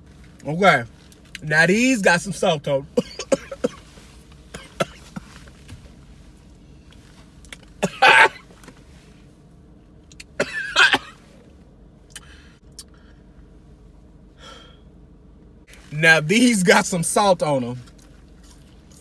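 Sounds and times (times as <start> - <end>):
man coughing: 2.9 - 5.4, 7.8 - 8.5, 10.4 - 11.2.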